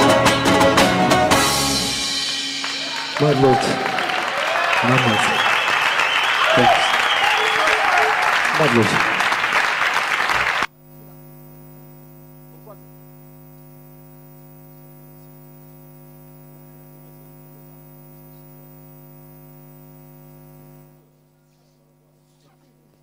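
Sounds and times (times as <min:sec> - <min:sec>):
crowd applause: 0:02.1 - 0:10.7
electrical mains hum: 0:04.7 - 0:23.0.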